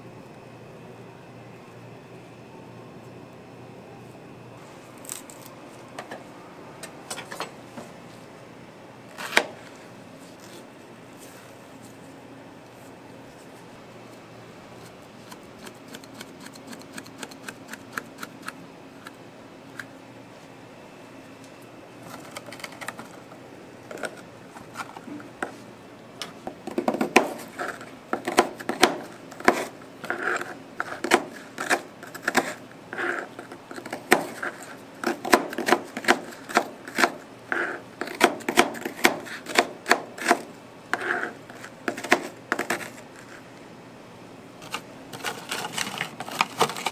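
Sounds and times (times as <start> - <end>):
knife chopping on plastic board: 26.7 - 27.4, 28.2 - 29.7, 35.0 - 37.2, 38.0 - 41.3, 41.9 - 42.9.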